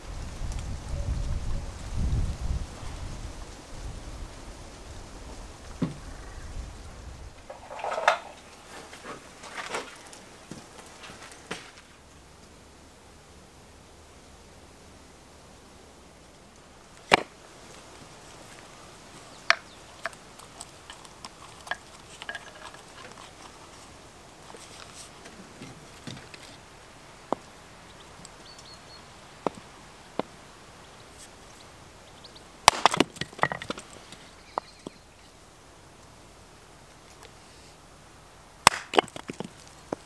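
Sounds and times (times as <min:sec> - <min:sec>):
hatchet striking firewood: 0:17.0 - 0:17.4, 0:19.5 - 0:23.4, 0:32.6 - 0:33.9, 0:38.6 - 0:40.0.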